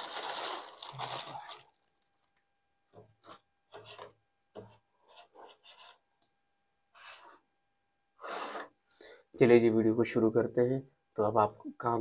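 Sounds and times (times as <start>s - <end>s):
quiet rasping rubs: 3.2s - 6.1s.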